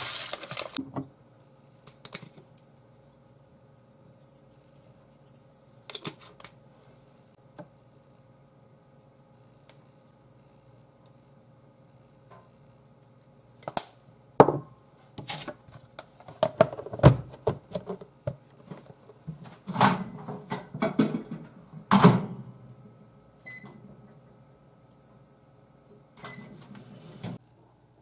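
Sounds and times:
microwave keypad beep: 0:23.4 - 0:23.8.

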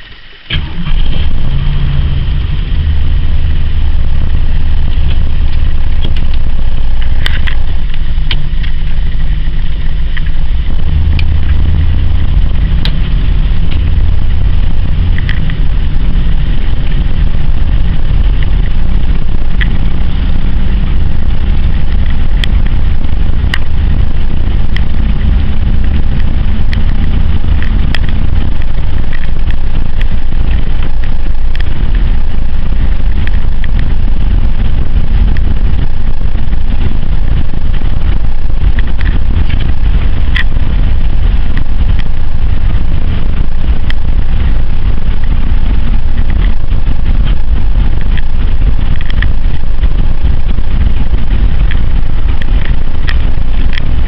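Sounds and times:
engine and road rumble: 0:00.0 - 0:54.0
light ticks: 0:23.5 - 0:54.0.

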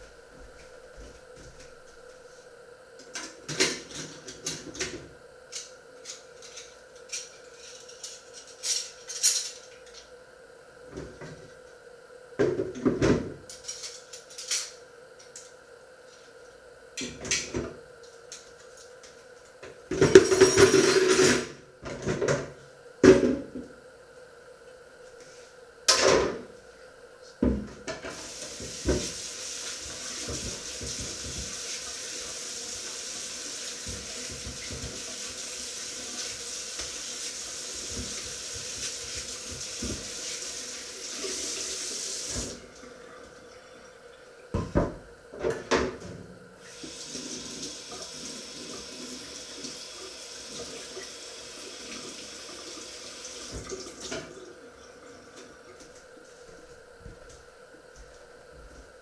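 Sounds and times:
tap running: 0:27.4 - 0:35.4, 0:36.0 - 0:40.4.

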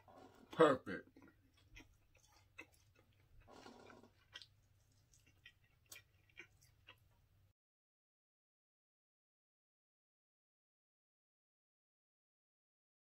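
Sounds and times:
chewing: 0:00.0 - 0:07.3
wet mouth clicks: 0:01.1 - 0:07.2.

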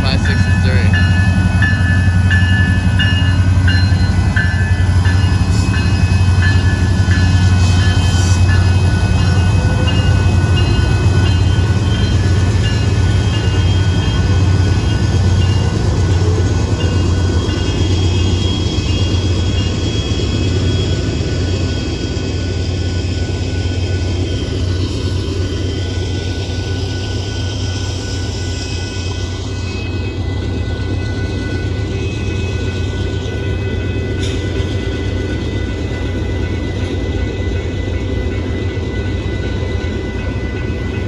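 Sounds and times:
diesel locomotive engines droning: 0:00.0 - 0:41.0
train wheels rumbling on rails: 0:00.0 - 0:41.0.

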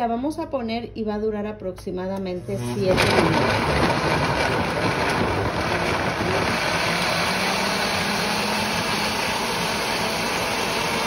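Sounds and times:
blender running: 0:02.4 - 0:11.0.

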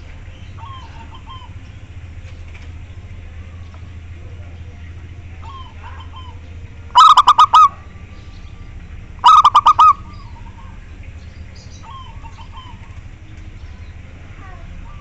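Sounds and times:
dove cooing: 0:00.0 - 0:15.0
faint bird chirping: 0:00.0 - 0:15.0.

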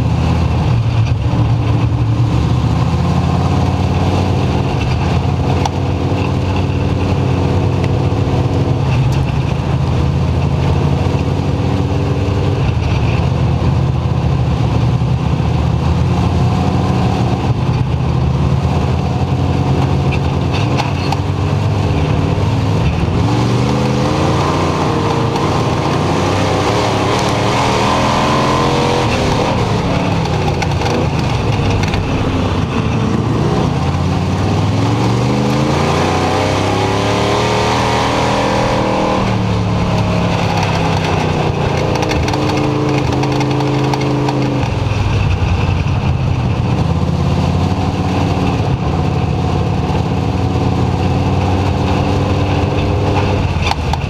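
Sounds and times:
race car engine: 0:00.0 - 0:54.0.

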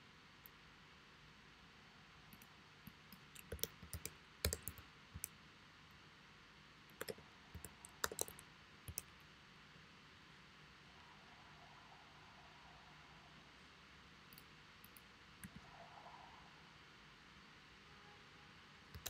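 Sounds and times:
typing on computer keyboard: 0:02.4 - 0:05.3, 0:06.9 - 0:09.1.

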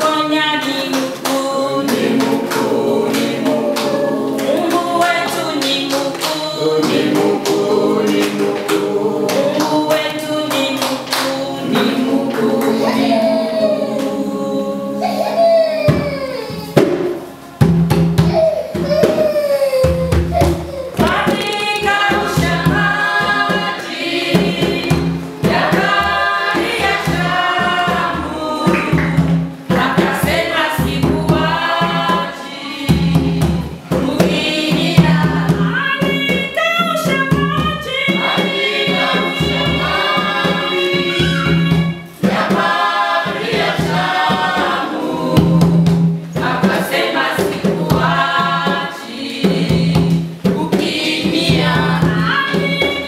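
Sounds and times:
choir singing gospel song: 0:00.0 - 0:15.7, 0:21.0 - 0:53.0
drums: 0:15.8 - 0:53.0.

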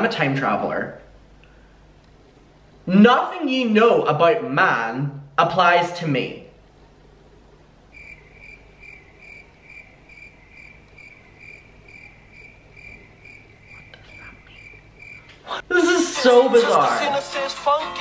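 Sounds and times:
cricket chirping: 0:07.9 - 0:15.6.

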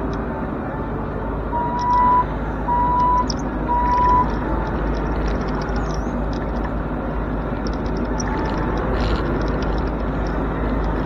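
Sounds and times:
diesel engine running: 0:00.0 - 0:11.0
loud electronic beeps: 0:01.6 - 0:04.3.

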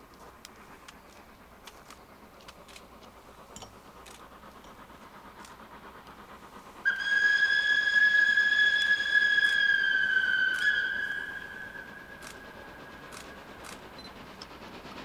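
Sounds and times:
steam locomotive whistle: 0:06.9 - 0:13.2.

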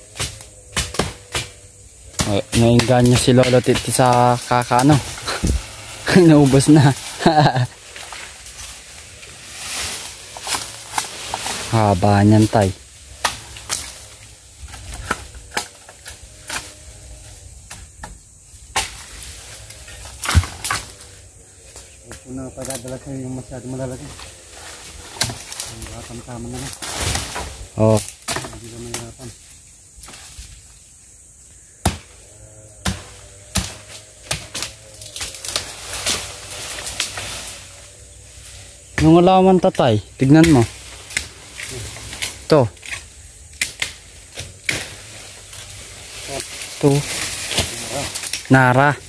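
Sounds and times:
woody stems cracking being cut: 0:00.1 - 0:16.9, 0:17.6 - 0:21.0, 0:21.7 - 0:29.3, 0:32.8 - 0:37.8, 0:40.2 - 0:48.9
twigs snapping and rustling: 0:00.2 - 0:12.6, 0:13.2 - 0:16.8, 0:18.7 - 0:21.0, 0:24.0 - 0:30.7, 0:32.8 - 0:37.8, 0:40.2 - 0:48.9.

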